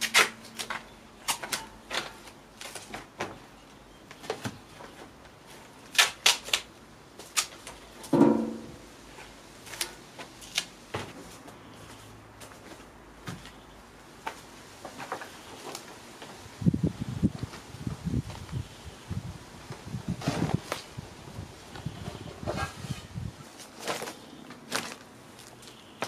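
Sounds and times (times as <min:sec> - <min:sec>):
poster sheet crackling: 0:23.5 - 0:25.8.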